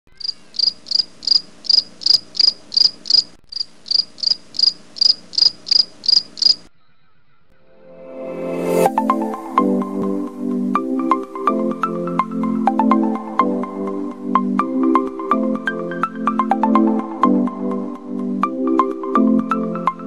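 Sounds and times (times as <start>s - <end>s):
cricket chirping: 0.1s - 6.7s
faint steady hum: 0.1s - 7.6s.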